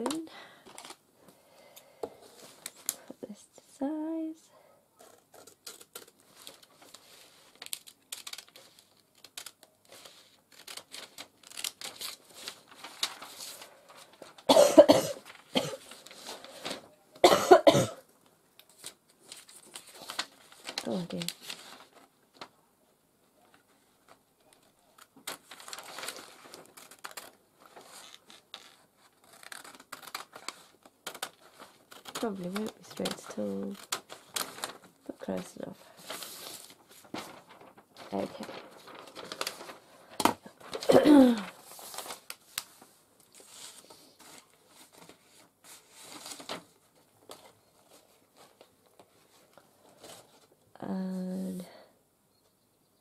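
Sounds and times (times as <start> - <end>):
paper crinkling: 0.0 - 1.4, 2.2 - 3.2, 5.0 - 17.0, 18.6 - 22.6, 23.4 - 50.6
scissors snipping paper: 28.1 - 34.6.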